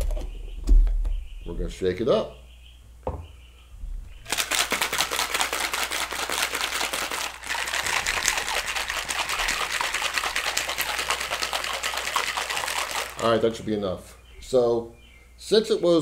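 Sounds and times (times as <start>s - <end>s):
cocktail shaker rattling: 4.3s - 13.4s.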